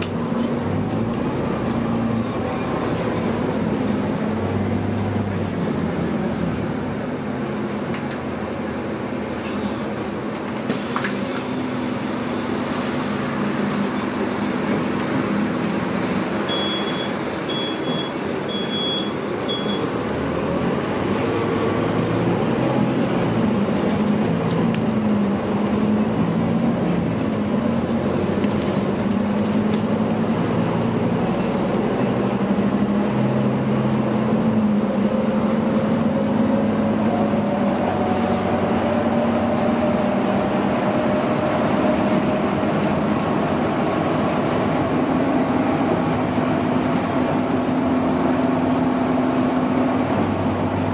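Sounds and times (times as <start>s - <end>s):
bus engine droning: 0.0s - 50.9s
short high beeps: 16.5s - 19.9s.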